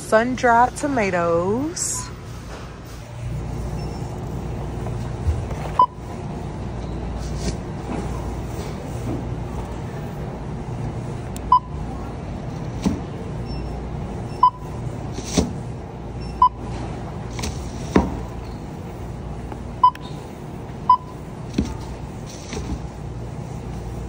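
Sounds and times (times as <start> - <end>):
barcode scanner beeps: 5.8 - 6.0, 11.5 - 11.8, 13.4 - 14.8, 16.2 - 16.7, 20.9 - 21.2.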